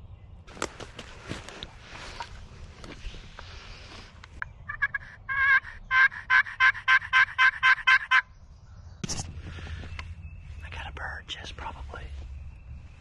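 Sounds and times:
turkey call hen yelps: 4.7 - 8.2.

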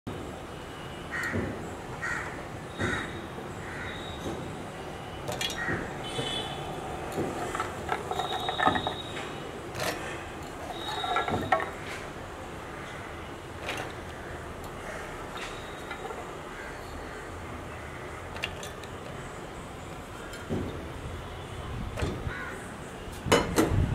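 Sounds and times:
crow cawing: 1.1 - 1.4, 2.0 - 4.1, 14.1 - 15.3, 16.5 - 18.2, 22.3 - 22.7
items clattering in metal jar: 5.3 - 5.6, 7.1 - 12.0, 13.6 - 14.0, 18.3 - 18.9.

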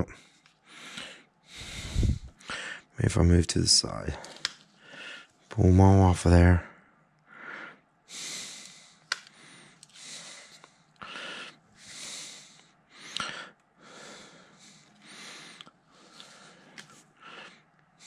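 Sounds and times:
man breathing: 0.0 - 3.0, 4.1 - 5.5, 6.6 - 18.0
sharp clicks: 9.1 - 10.0.

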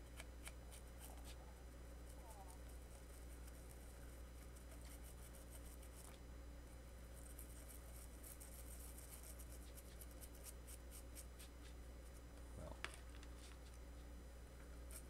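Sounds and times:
steady low hum: 0.0 - 15.0
scratchy rubbing strokes: 0.4 - 6.2, 7.2 - 12.2.

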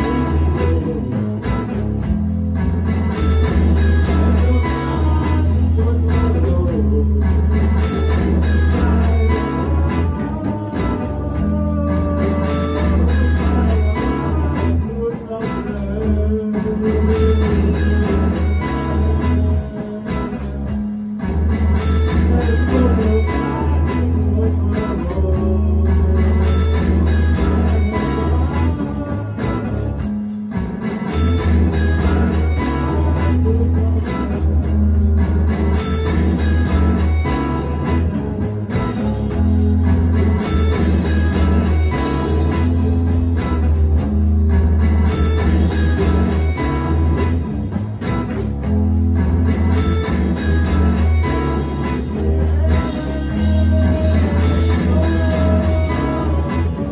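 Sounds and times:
rock music with electric guitar: 0.0 - 56.9.

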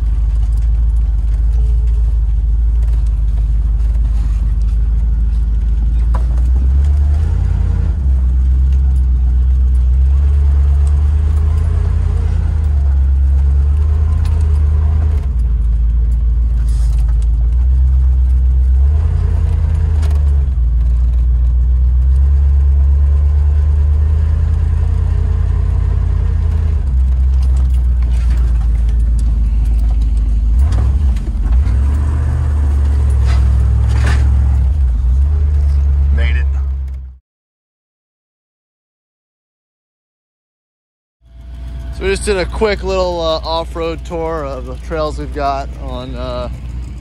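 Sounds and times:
engine drone inside car cabin: 0.0 - 37.2, 41.3 - 47.0
light rattles in cab: 41.4 - 47.0.

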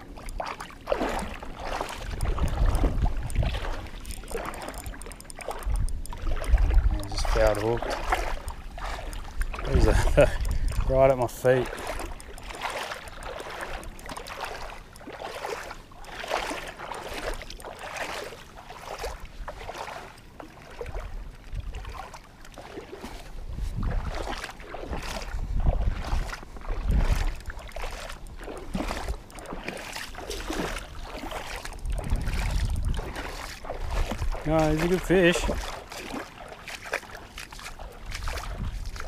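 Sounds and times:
water splashing and sloshing: 0.0 - 39.0
wind rumble on microphone: 1.2 - 14.8, 20.8 - 22.1, 23.2 - 36.0, 37.7 - 39.0.

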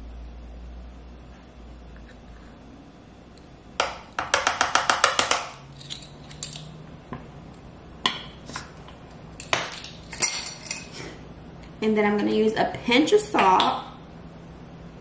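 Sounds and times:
plastic spoons tapping spice jar: 3.8 - 5.6.

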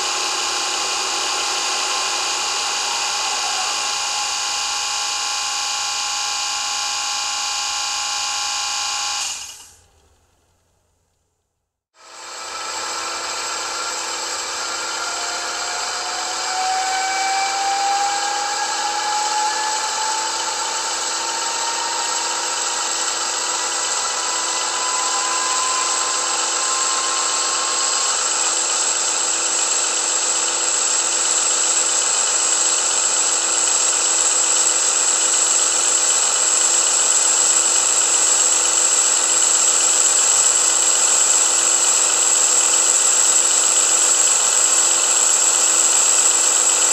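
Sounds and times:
steady high tone: 0.0 - 5.3, 13.6 - 29.2
rising whine: 0.0 - 9.7, 12.0 - 31.2
model locomotive diesel engine sound: 0.0 - 10.1, 12.0 - 46.9.

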